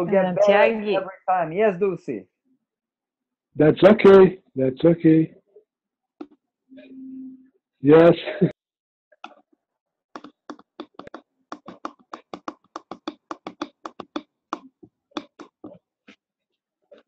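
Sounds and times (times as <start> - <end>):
person clapping: 10.2 - 14.2, 15.2 - 15.7.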